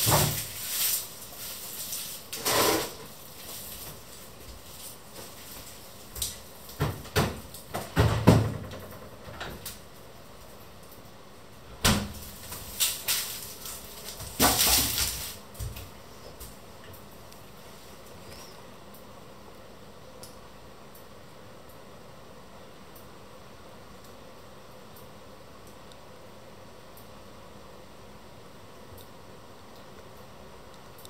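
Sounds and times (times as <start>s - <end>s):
kitchen knocks and clatters: 0.0s - 0.7s, 6.2s - 9.7s, 11.8s - 15.9s
plastic mesh bag rustling: 0.0s - 7.7s, 12.1s - 15.8s.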